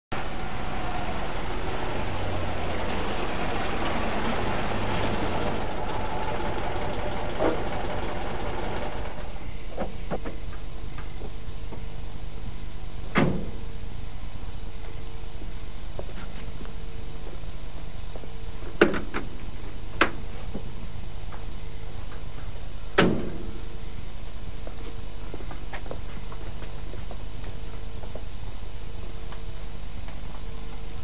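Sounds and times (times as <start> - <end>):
car engine idling: 0.1 - 9.6.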